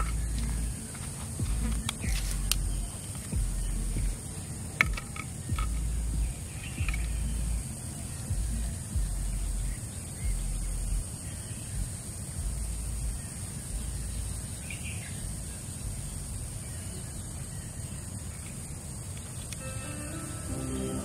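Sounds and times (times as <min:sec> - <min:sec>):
low rumbles: 0:00.0 - 0:11.1
bird chirp: 0:00.0 - 0:21.0
steady high-pitched hiss: 0:00.0 - 0:21.0.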